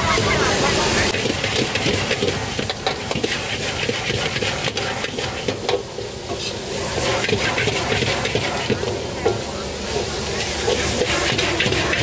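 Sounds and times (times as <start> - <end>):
food sizzling in a pan: 0.0 - 12.0
utensil scraping a pan: 1.1 - 8.9, 10.4 - 12.0.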